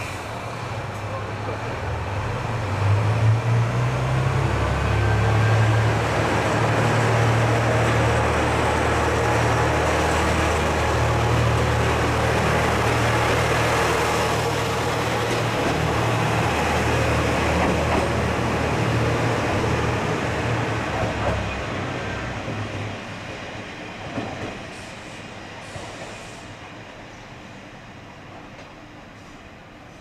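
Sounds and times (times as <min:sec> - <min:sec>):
diesel railcar engine drone: 0:00.0 - 0:30.0
rail clatter: 0:05.7 - 0:20.1.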